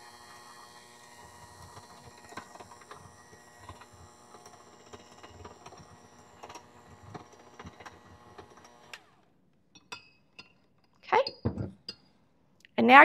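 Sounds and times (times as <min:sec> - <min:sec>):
electric hand mixer whirring: 0:00.0 - 0:09.3.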